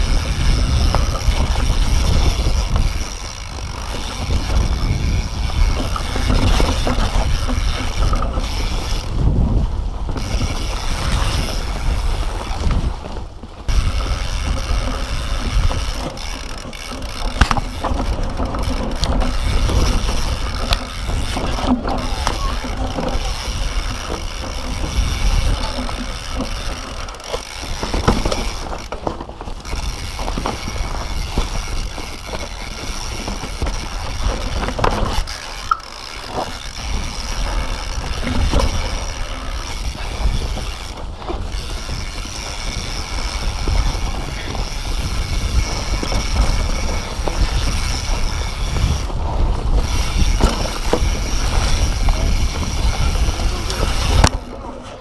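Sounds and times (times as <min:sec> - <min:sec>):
bike rattling over rocks: 0:00.0 - 0:55.0
tyres rolling on dirt: 0:00.0 - 0:55.0
wind on microphone: 0:00.0 - 0:55.0
high whirr: 0:29.6 - 0:55.0.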